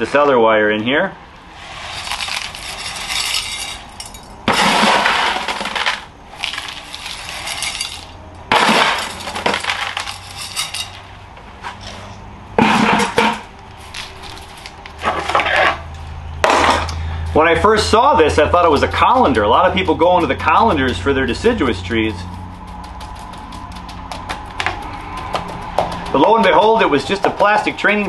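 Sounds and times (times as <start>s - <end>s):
grit scraping: 1.5s - 13.2s, 13.8s - 15.9s, 19.2s - 28.0s
grit pouring into plastic pot: 1.6s - 3.7s, 4.7s - 8.0s.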